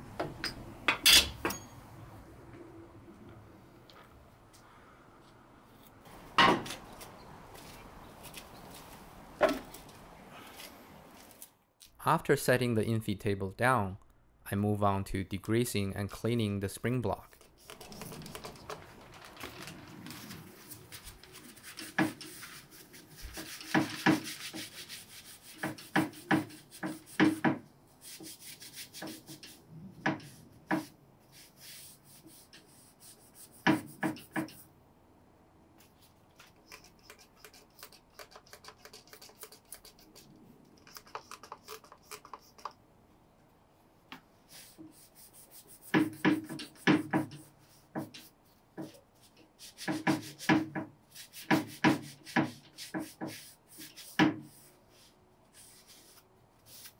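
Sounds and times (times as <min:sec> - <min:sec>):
paper towel scrubbing metal: 0:17.4 - 0:29.6.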